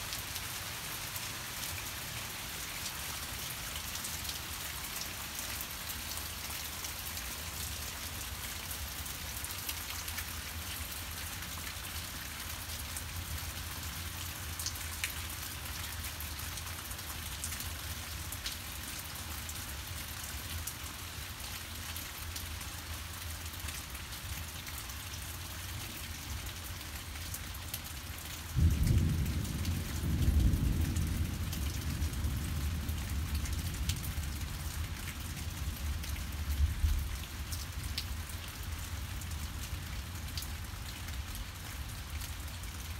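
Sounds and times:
steady rain falling: 0:00.0 - 0:42.9
thunder rumbling: 0:28.6 - 0:33.4.

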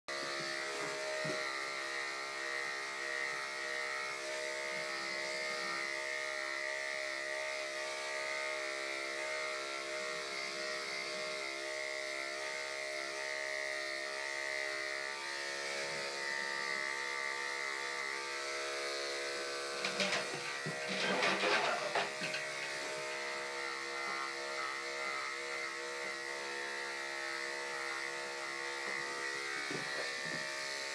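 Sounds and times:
electric clippers buzzing: 0:00.1 - 0:30.9.

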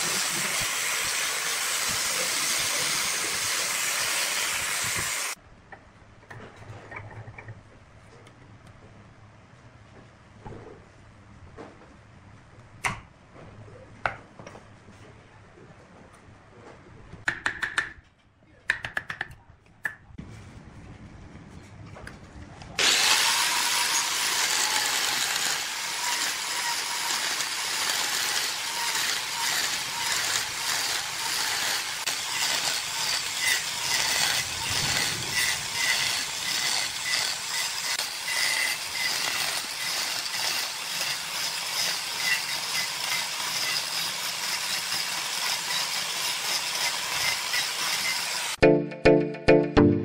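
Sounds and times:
angle grinder cutting wood: 0:00.0 - 0:05.4, 0:22.8 - 0:48.6.

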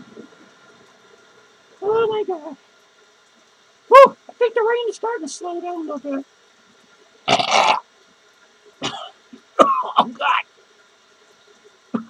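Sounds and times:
man coughing and clearing throat: 0:08.8 - 0:10.2.

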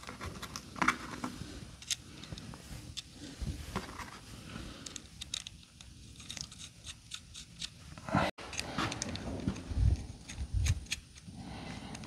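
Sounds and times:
metal clamp clicks and scrapes: 0:04.8 - 0:07.8, 0:08.5 - 0:11.3.

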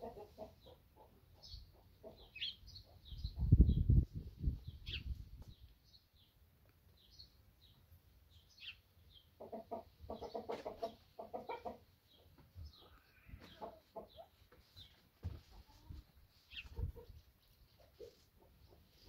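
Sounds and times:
hen clucking softly: 0:00.0 - 0:03.6, 0:09.4 - 0:19.0
small birds chirping: 0:00.1 - 0:19.0.

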